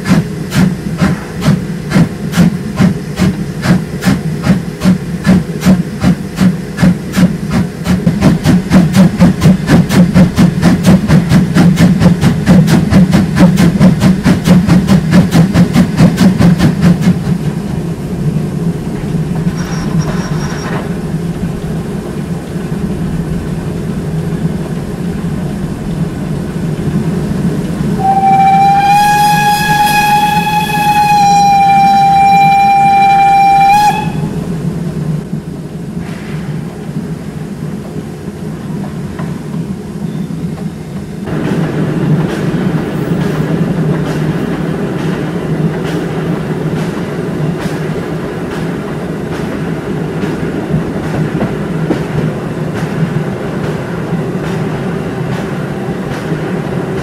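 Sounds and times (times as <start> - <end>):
locomotive running noise: 0.0 - 57.0
steam locomotive exhaust beats: 0.0 - 57.0
steam whistle blast: 28.0 - 34.4.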